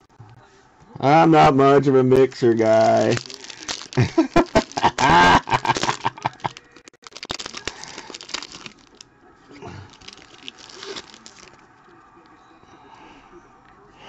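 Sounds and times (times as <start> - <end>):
foil pack crinkling: 2.3 - 9.1, 9.8 - 11.7.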